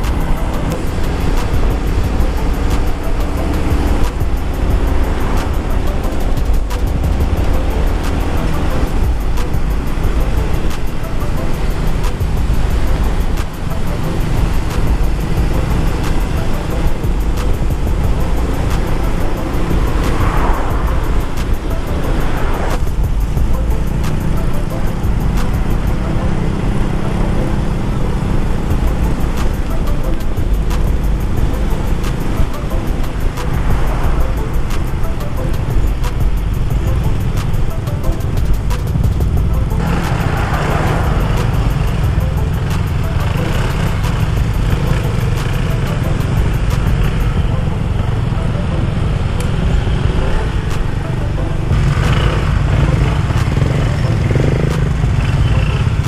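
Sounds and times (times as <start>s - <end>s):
wind rushing over microphone: 0.0s - 25.9s
motorcycle engine and road rumble: 0.0s - 56.0s.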